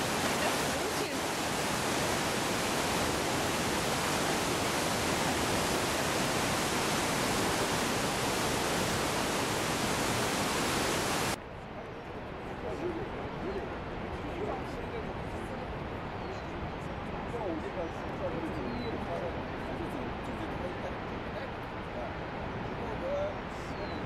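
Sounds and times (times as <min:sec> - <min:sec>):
whitewater rapids rushing: 0:00.0 - 0:11.4
open-air background: 0:00.0 - 0:24.0.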